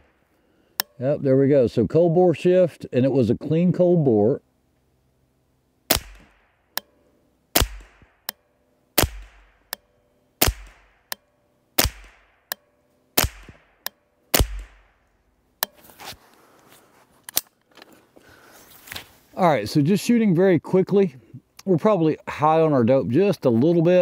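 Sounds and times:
rifle shots cracking: 0:05.9 - 0:06.6, 0:07.6 - 0:08.3, 0:09.0 - 0:09.7, 0:10.4 - 0:11.1, 0:11.8 - 0:12.5, 0:13.2 - 0:15.0
light handling noise: 0:15.6 - 0:19.4.

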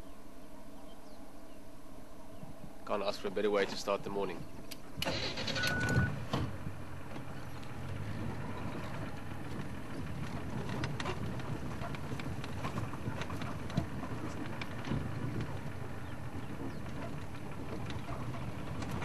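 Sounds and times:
vehicle clicks and knocks: 0:04.6 - 0:19.0
vehicle engine running at low revs: 0:04.9 - 0:19.0.

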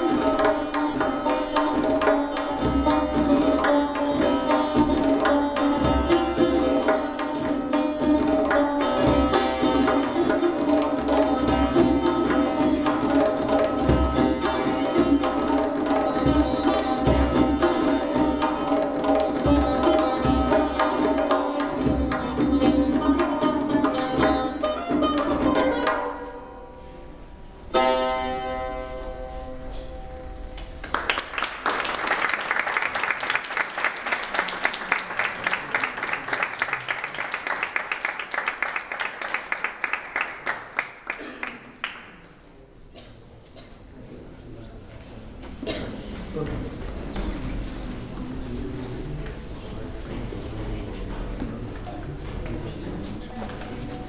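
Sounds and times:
hand drum strokes: 0:00.0 - 0:30.8
plucked lute notes: 0:00.0 - 0:30.8.

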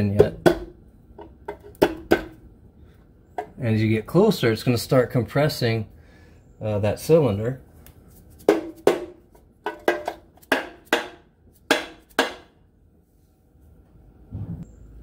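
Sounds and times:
hammer tapping metal: 0:08.5 - 0:12.5.

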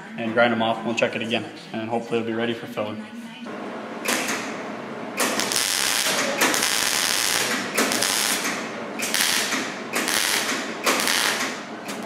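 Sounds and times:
welder arc crackling: 0:04.0 - 0:04.6, 0:05.2 - 0:12.0.

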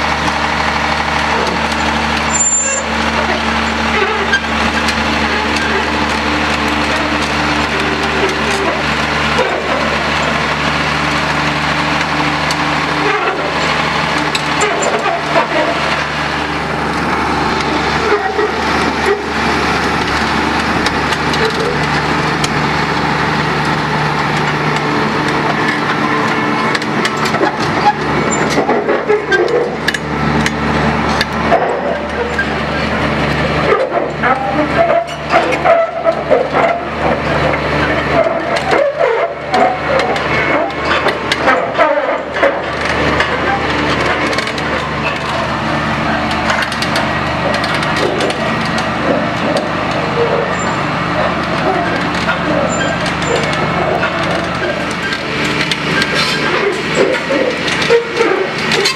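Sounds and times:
loud engine drone: 0:00.0 - 0:58.9
metallic clanks from tracks: 0:12.0 - 0:58.9.

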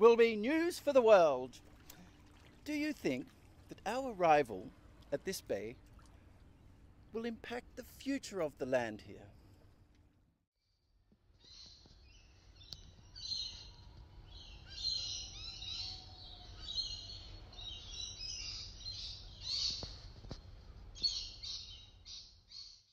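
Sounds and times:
small birds chirping: 0:11.4 - 0:22.9.

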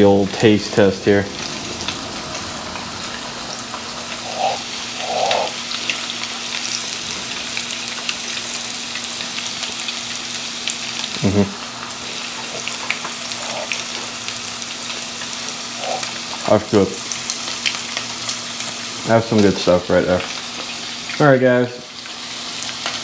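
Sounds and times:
fish frying in hot oil: 0:00.0 - 0:23.0.

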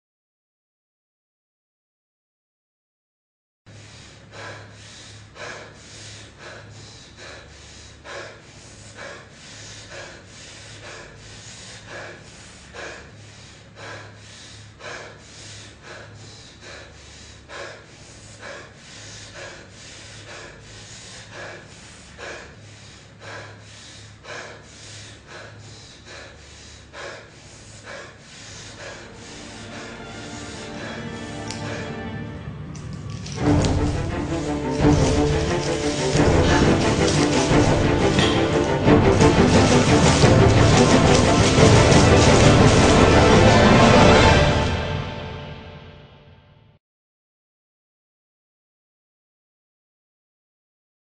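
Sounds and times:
heavy rhythmic breathing: 0:03.7 - 0:46.1
music: 0:28.8 - 0:46.8.

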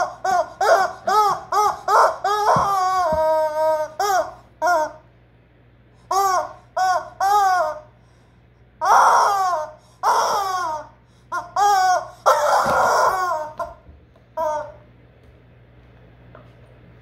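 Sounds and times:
rubber chicken toy squawking: 0:00.0 - 0:05.1, 0:06.1 - 0:07.9, 0:08.8 - 0:13.8, 0:14.4 - 0:14.8.

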